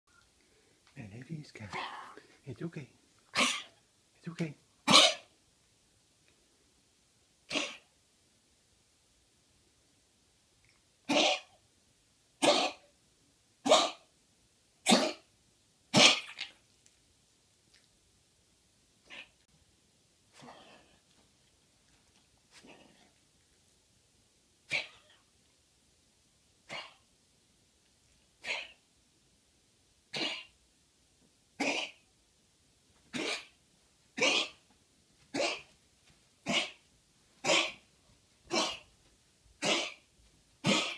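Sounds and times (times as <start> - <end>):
dog coughing: 3.3 - 3.8, 4.8 - 5.3, 7.5 - 7.9, 11.1 - 11.6, 12.4 - 12.9, 13.6 - 14.1, 14.8 - 15.3, 15.9 - 16.5, 24.7 - 25.1, 26.7 - 27.0, 28.4 - 28.8, 30.1 - 30.6, 31.6 - 32.0, 33.1 - 33.6, 34.2 - 34.6, 35.3 - 35.7, 36.4 - 36.8, 37.4 - 37.8, 38.5 - 38.9, 39.6 - 40.9.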